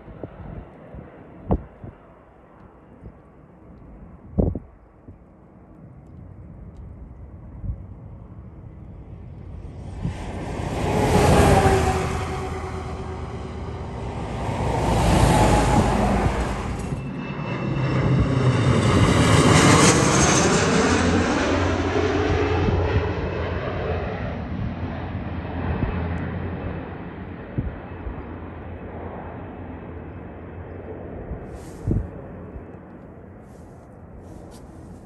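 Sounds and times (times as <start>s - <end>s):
jet engine whine passing overhead: 4.9s - 35.0s
truck passing: 9.6s - 17.2s.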